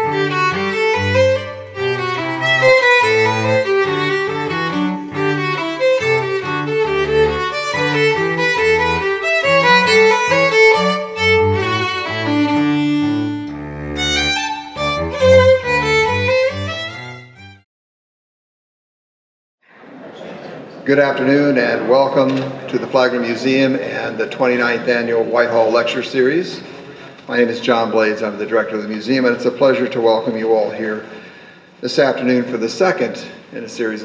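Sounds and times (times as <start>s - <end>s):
lower bass line: 0.0s - 17.6s
violin and bowed strings music: 0.0s - 17.6s.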